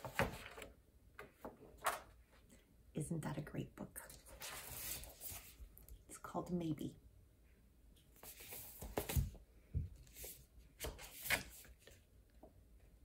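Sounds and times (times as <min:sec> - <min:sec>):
book knocking and rustling: 0:08.3 - 0:10.0.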